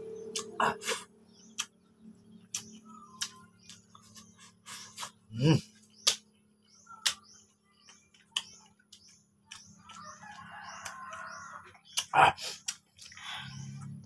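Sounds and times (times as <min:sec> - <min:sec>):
man slurping: 0:00.4 - 0:01.1, 0:12.0 - 0:12.8
lip smacks and mouth clicks: 0:01.5 - 0:01.8, 0:02.4 - 0:04.3, 0:06.0 - 0:06.3, 0:11.8 - 0:13.3.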